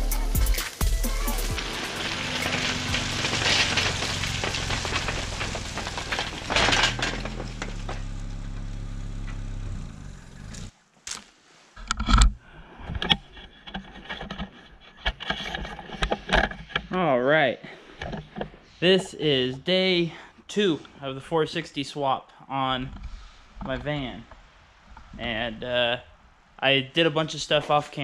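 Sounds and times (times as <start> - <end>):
vehicle engine running: 0.0 - 10.7.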